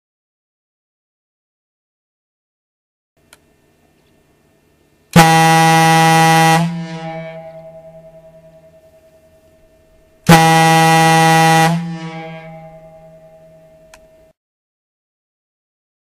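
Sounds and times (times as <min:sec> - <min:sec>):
ship's air horn blasts: 0:05.1 - 0:14.3.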